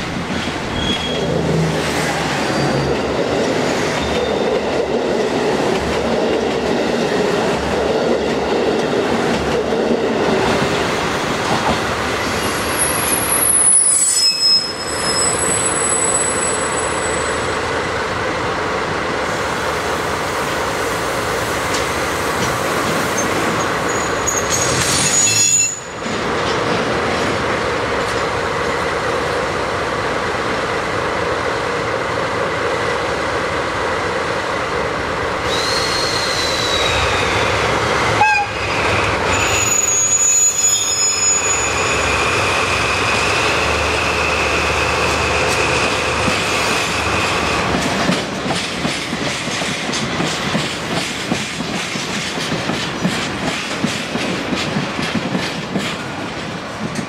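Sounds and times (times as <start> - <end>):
metallic wheel squeals: 0.4 - 1.4, 2.4 - 3.0, 12.4 - 17.3, 23.2 - 26.0, 39.3 - 45.1
diesel locomotive engine drone: 41.4 - 57.0.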